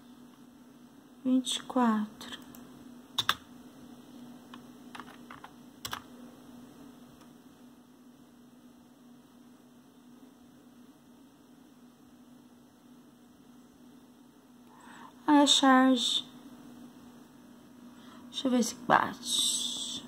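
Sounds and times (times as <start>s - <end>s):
low electrical hum: 0.0s - 20.0s
keyboard typing: 3.2s - 3.5s, 4.5s - 6.1s.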